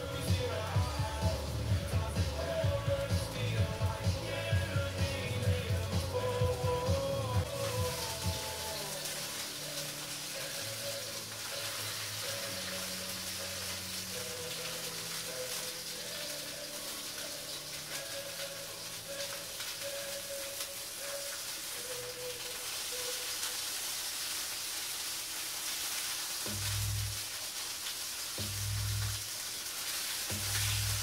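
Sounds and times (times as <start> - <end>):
chicken sizzling in oil: 0.0 - 31.0
quiet background music: 0.0 - 31.0.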